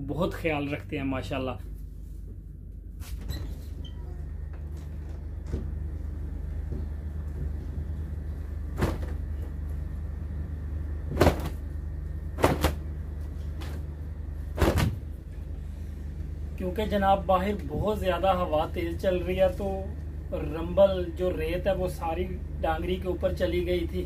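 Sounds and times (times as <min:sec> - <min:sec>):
steady low rumble: 0:00.0 - 0:24.0
cloth coverall snapping: 0:08.8 - 0:09.2, 0:11.1 - 0:11.7, 0:12.4 - 0:12.9, 0:14.5 - 0:15.2.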